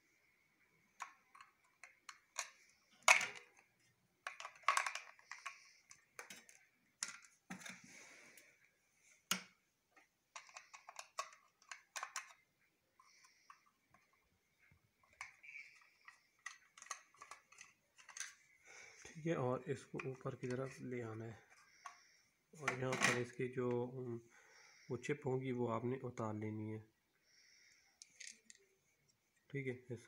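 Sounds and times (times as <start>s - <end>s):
plastic clicks and knocks: 0.9s - 7.8s.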